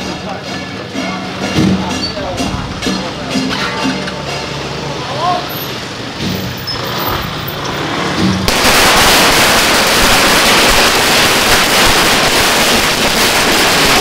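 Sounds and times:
firecrackers crackling: 5.7 - 14.0.

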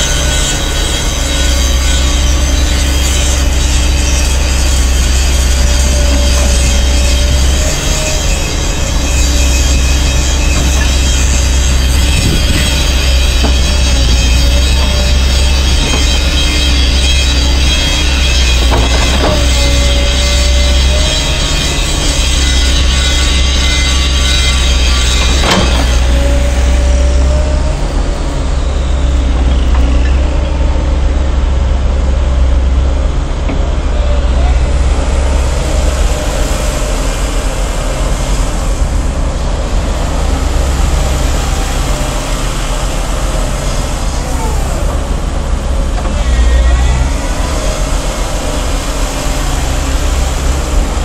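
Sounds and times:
excavator diesel engine working: 0.0 - 51.0.

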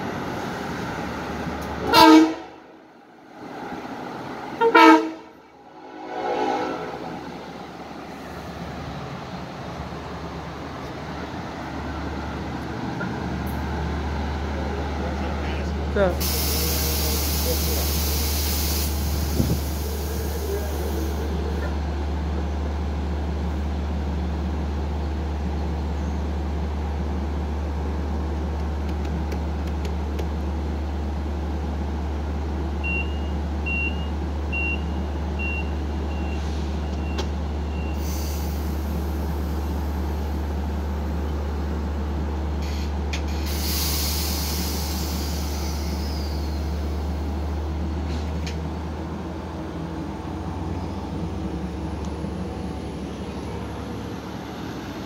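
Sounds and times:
diesel locomotive humming: 0.0 - 55.0
train door air hisses: 16.2 - 21.4, 36.4 - 39.8, 42.6 - 47.0
short high warning beeps: 32.8 - 38.0.

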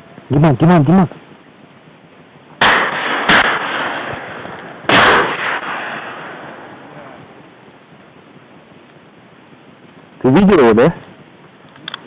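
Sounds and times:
shotgun shots with rolling echo: 2.6 - 6.9.

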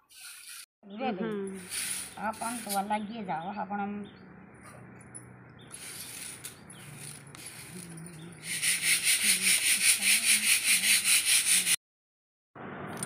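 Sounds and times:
grain rustling in metal sieve: 1.6 - 2.9, 5.7 - 11.2
rhythmic sieve swishes: 1.6 - 2.9, 5.7 - 11.8.

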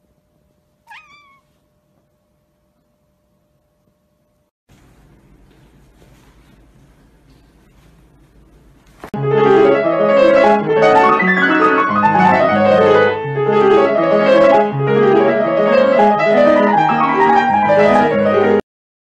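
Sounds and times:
piano melody: 9.2 - 18.6.

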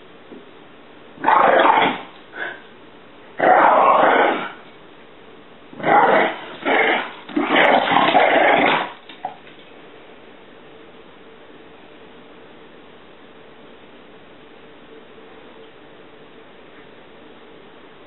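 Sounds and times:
cat hissing: 1.2 - 2.6
dog growling: 1.2 - 2.7, 3.4 - 4.7, 5.8 - 9.4.

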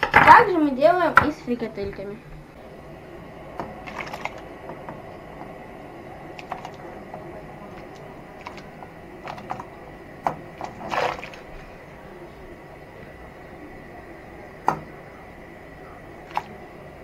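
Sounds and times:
potatoes splashing into water: 3.8 - 4.4, 10.6 - 11.5, 16.2 - 16.6.

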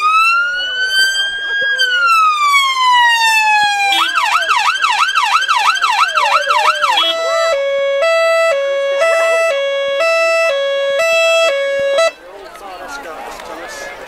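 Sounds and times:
emergency siren yelping: 0.0 - 12.2
two-tone hi-lo siren: 0.0 - 12.2.

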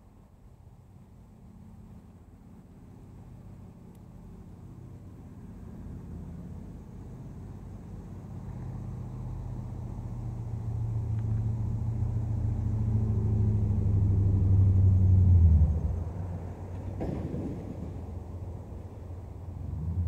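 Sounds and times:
vehicle passing by: 4.7 - 20.0.

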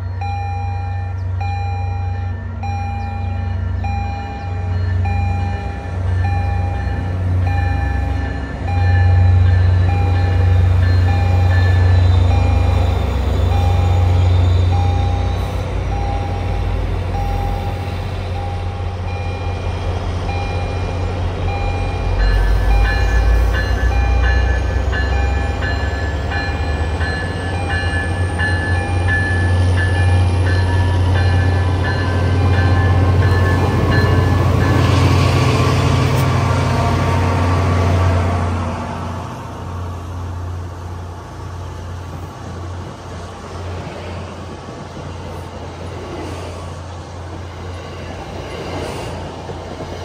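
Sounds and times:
locomotive bell ringing: 0.0 - 36.1
diesel locomotive engine: 0.0 - 50.0.

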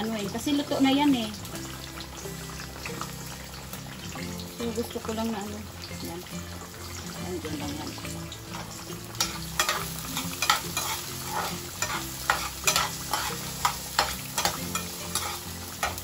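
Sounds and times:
food deep-frying in oil: 0.0 - 16.0
metal spoon scraping skillet: 8.5 - 16.0.

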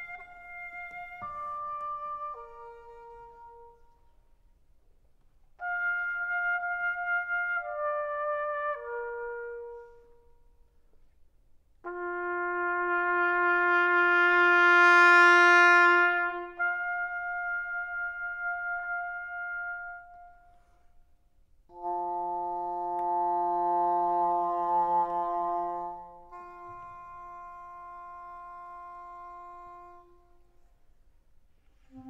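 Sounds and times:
trumpet holding long low note: 11.8 - 20.5, 21.7 - 30.6.

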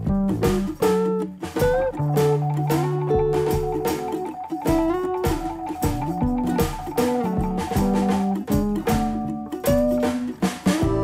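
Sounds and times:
background music with steady beat: 0.0 - 11.0.

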